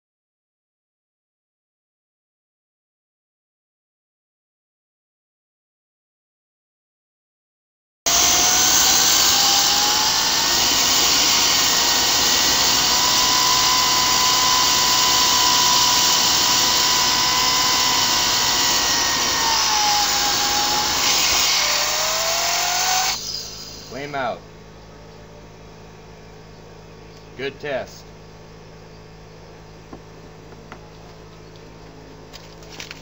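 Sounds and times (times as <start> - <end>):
jet turbine rushing and whining: 8.1 - 24.3.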